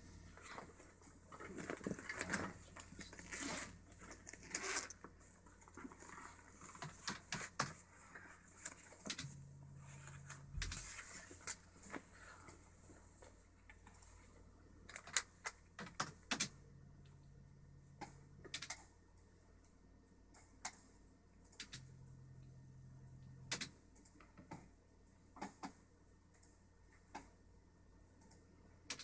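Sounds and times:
handling clicks and rustles: 0.3 - 9.4.

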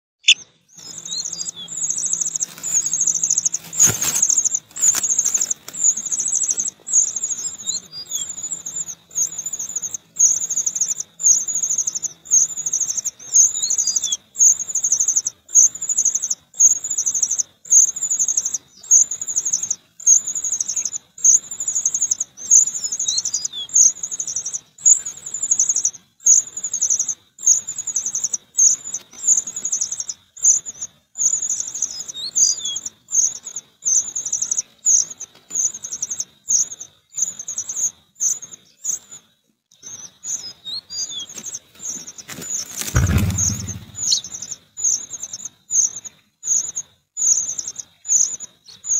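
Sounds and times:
bird chick begging call: 42.8 - 44.2.

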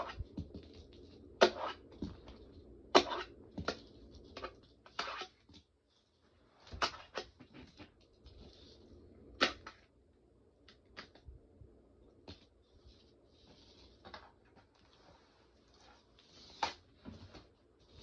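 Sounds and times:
fingerboard wheels scraping and rolling: 1.4 - 2.3, 3.0 - 5.6.

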